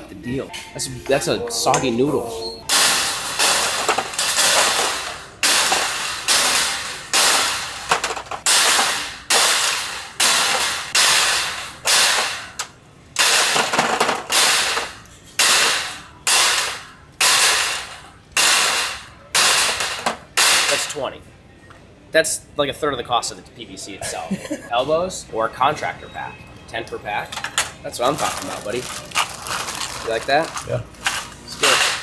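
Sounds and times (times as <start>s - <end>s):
plastic fittings clattering in wire cart: 2.7s - 12.6s, 27.4s - 32.0s.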